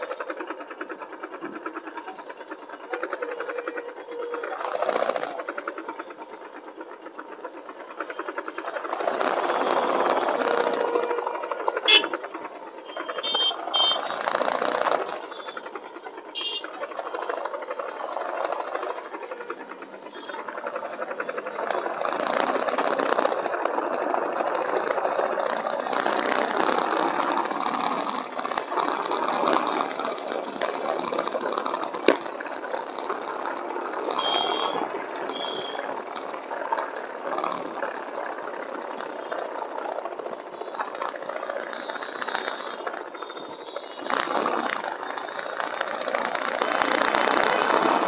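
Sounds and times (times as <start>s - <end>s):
motorcycle engine: 0.0s - 48.0s
vibration rattle and buzz: 0.0s - 48.0s.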